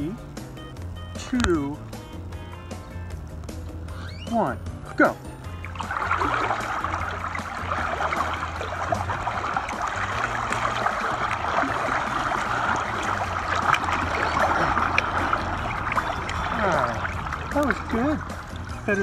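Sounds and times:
pool water swishing and splashing: 4.4 - 19.0.

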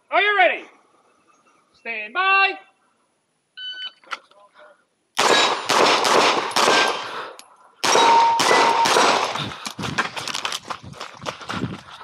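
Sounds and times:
pistol shots with echo: 5.2 - 9.4.

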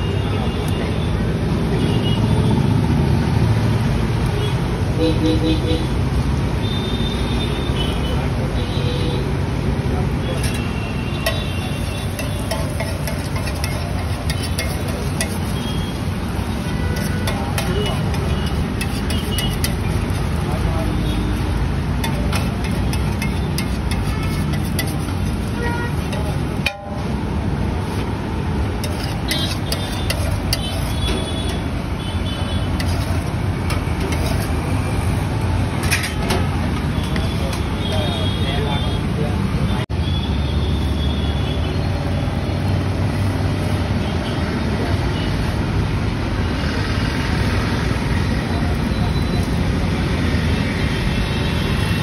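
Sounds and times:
traffic rumble: 0.0 - 52.0
metal spatula scraping a griddle: 10.2 - 27.2, 28.7 - 37.7.

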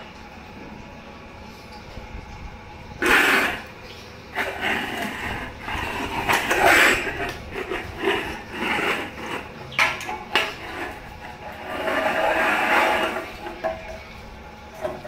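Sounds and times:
metal bowl scraping on concrete: 3.0 - 15.0
metal bowl clanks: 4.4 - 14.2.

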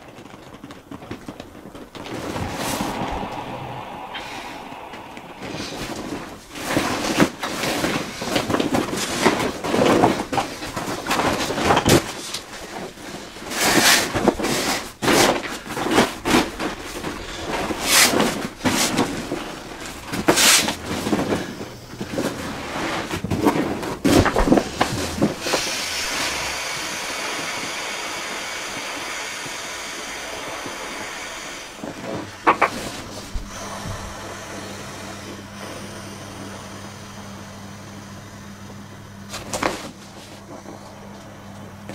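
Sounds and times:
steady hiss: 1.8 - 9.2, 13.4 - 38.6.

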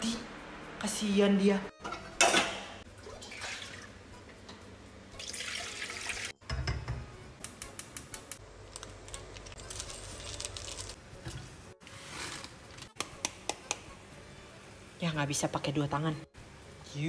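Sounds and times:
water pouring into a pot: 3.0 - 4.0, 5.2 - 6.4.

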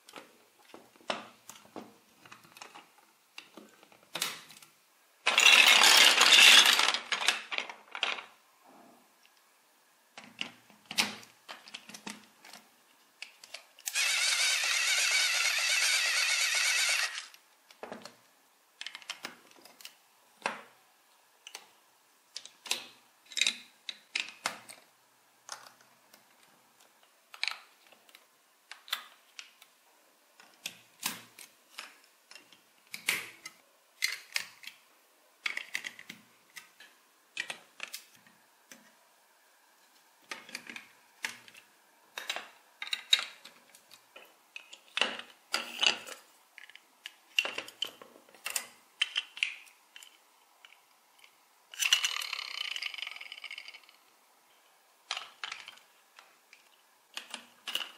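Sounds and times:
plastic toy bricks clicking together: 5.3 - 8.3, 13.2 - 18.2, 18.8 - 20.7, 22.3 - 29.7, 30.4 - 34.8, 35.4 - 38.8, 40.2 - 54.1, 55.0 - 57.9.

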